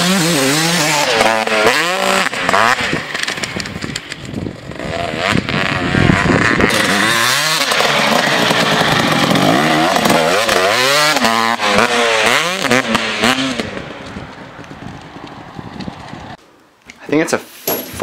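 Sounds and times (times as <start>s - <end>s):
dirt bike engine revving: 0.0s - 14.2s.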